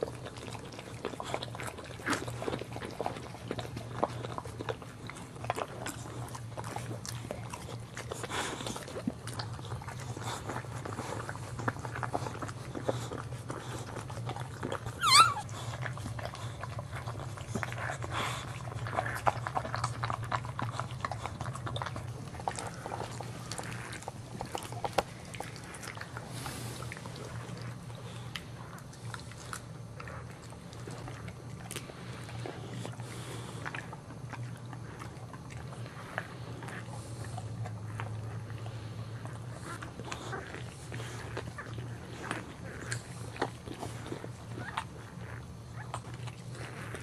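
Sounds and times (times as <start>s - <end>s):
steady low hum: 0.0s - 47.0s.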